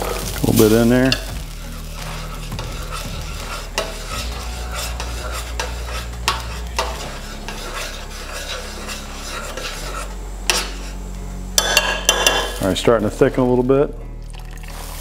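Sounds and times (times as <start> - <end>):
hot sauce sizzling: 0.0 - 15.0
metal spoon clinking against pan: 11.6 - 12.6.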